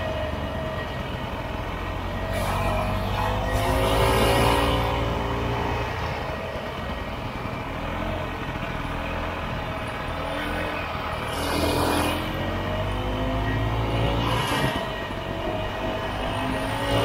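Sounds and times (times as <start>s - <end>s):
snowmobile engine revving: 2.3s - 6.0s, 10.1s - 17.0s.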